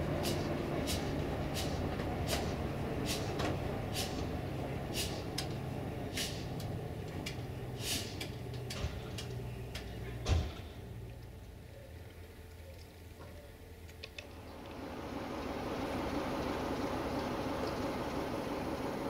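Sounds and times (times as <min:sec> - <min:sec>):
diesel locomotive engine idling: 0:00.0 - 0:19.0
short sharp hisses: 0:00.2 - 0:04.3, 0:04.9 - 0:05.3, 0:06.2 - 0:06.5, 0:07.8 - 0:08.2
thump: 0:10.2 - 0:10.7.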